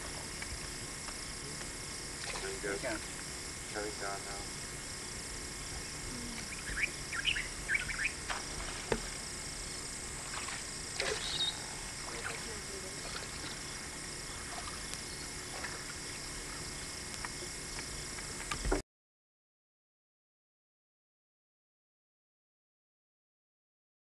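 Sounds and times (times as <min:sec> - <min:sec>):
steady hiss: 0:00.0 - 0:18.8
brief bird calls: 0:06.4 - 0:08.2, 0:11.0 - 0:11.8
short bird chirps: 0:06.5 - 0:08.2, 0:11.1 - 0:11.7.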